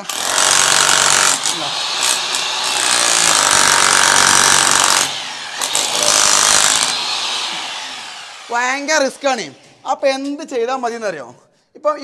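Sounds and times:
demolition hammer chiselling tiles: 0.0s - 7.0s.

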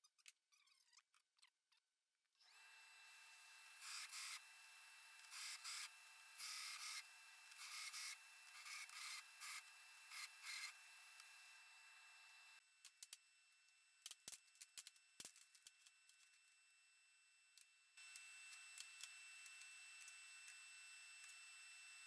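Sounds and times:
belt grinder hissing: 3.2s - 12.6s.

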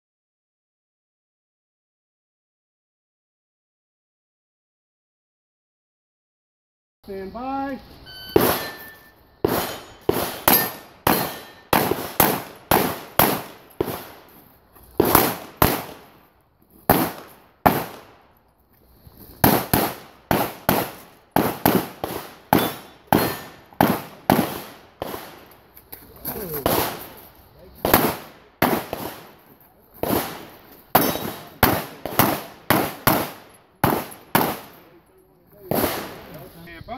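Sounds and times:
pistol shots: 8.4s - 14.3s, 15.0s - 16.2s, 16.9s - 18.2s, 19.4s - 25.5s, 26.5s - 27.2s, 27.8s - 29.4s, 30.0s - 34.9s, 35.7s - 36.4s.

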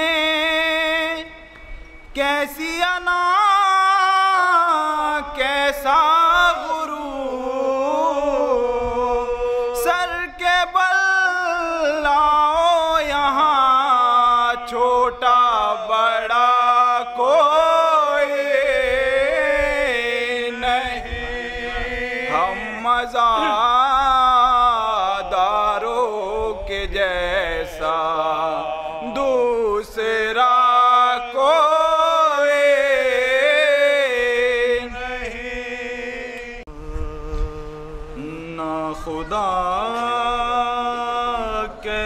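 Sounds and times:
man chanting into a microphone: 0.0s - 42.0s.

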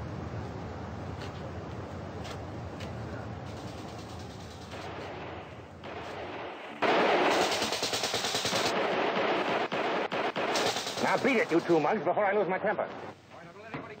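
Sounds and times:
low background noise: 0.0s - 14.0s
machine-gun fire: 3.5s - 12.0s.

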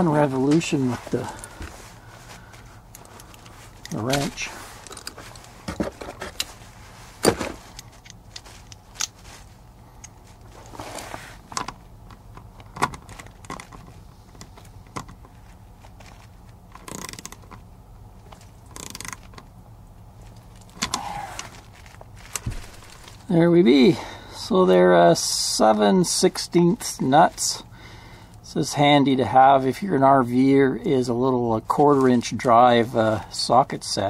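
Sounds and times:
ratchet clicking: 16.8s - 17.4s, 18.7s - 19.3s.

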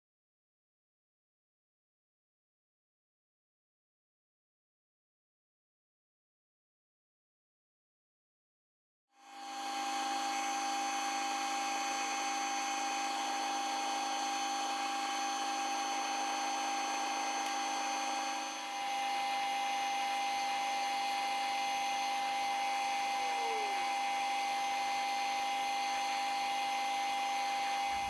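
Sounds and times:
metal lathe whining: 9.2s - 28.0s.

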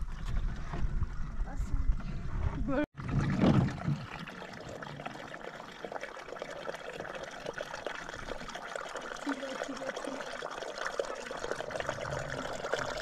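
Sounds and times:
water trickling: 3.0s - 13.0s.

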